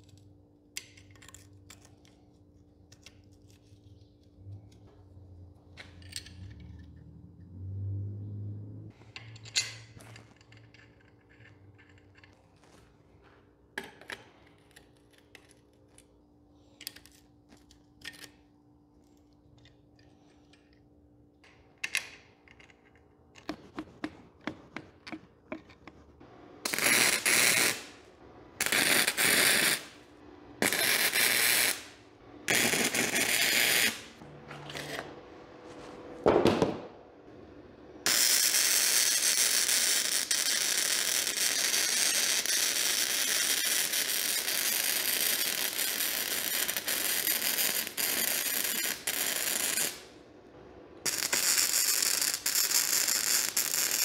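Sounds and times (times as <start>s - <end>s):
arc welding crackle: 26.6s - 30.0s, 30.6s - 34.2s, 38.0s - 50.1s, 51.1s - 54.0s.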